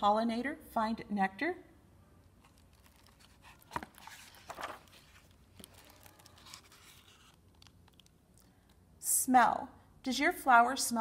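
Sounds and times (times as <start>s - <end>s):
book pages turning: 2.4s - 8.2s.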